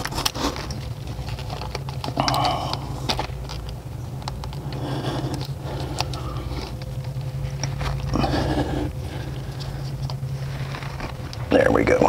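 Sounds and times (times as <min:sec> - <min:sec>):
small clicks of parts: 0:00.0 - 0:08.2
scraping rustle: 0:00.0 - 0:11.6
steady low hum: 0:00.0 - 0:12.0.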